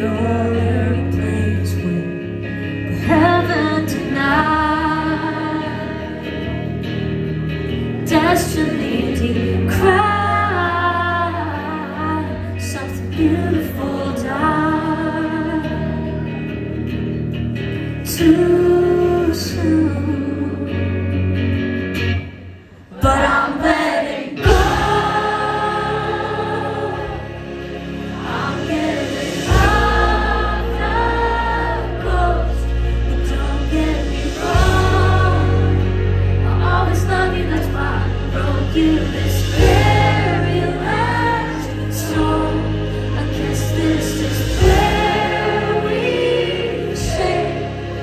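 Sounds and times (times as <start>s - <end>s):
live band with sung vocals: 0.0s - 48.0s
heavy bass: 24.4s - 48.0s.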